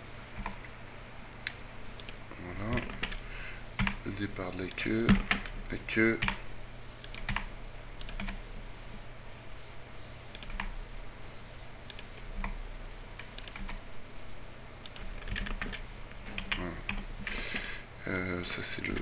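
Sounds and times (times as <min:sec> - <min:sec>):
low electrical hum: 0:00.0 - 0:19.0
keyboard and mouse clicks: 0:07.0 - 0:08.4, 0:10.3 - 0:10.7, 0:13.2 - 0:13.8, 0:14.8 - 0:17.0.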